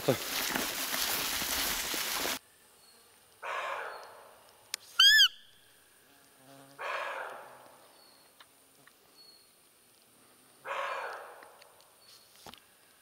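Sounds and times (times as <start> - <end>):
deer call peep: 5.0 - 5.6.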